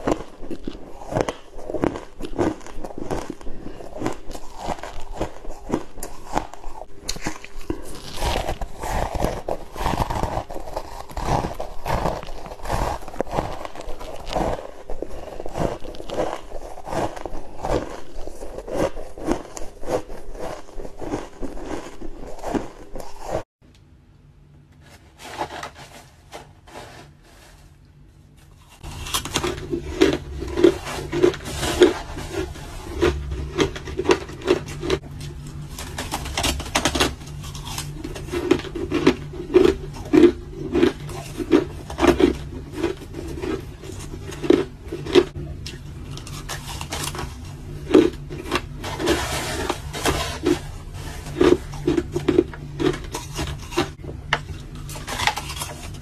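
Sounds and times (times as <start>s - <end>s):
ice crunching between teeth: 0.0s - 23.4s, 28.6s - 56.0s
metal spoon scraping ice: 28.8s - 35.0s, 46.1s - 54.0s.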